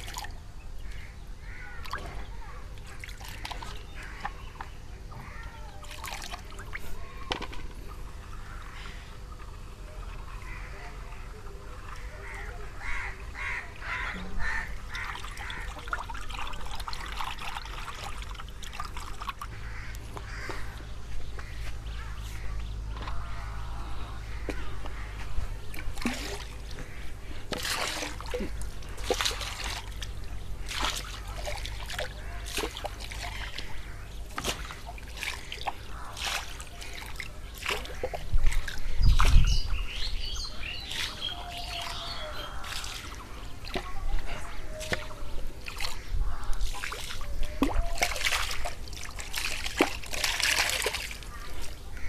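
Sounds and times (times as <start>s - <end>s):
liquid splashing into water: 5.8s - 7.9s, 14.6s - 20.6s, 25.6s - 39.8s, 40.6s - 52.0s
small birds chirping: 28.3s - 48.1s.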